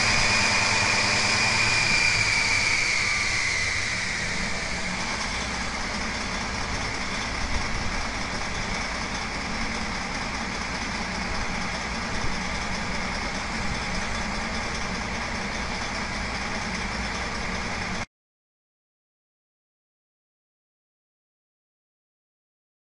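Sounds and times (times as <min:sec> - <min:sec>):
diesel engine idling: 0:00.0 - 0:18.1.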